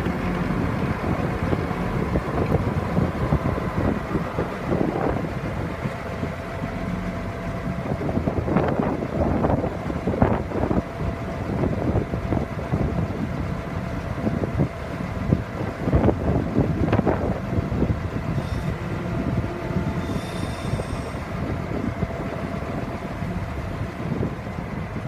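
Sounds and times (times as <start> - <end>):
wind buffeting microphone: 0.0 - 25.0
faint steady hum: 18.3 - 24.2.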